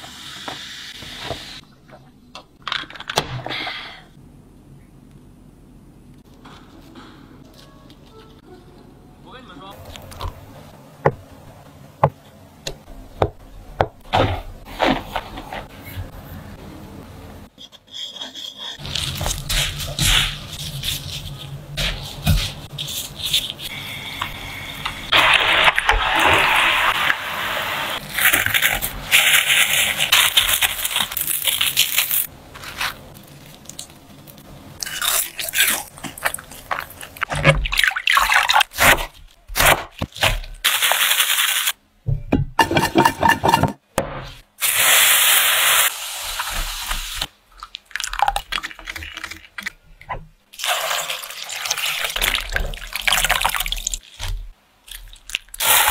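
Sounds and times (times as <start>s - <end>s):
knife cutting cabbage: 17.6s - 23.8s, 38.4s - 40.5s.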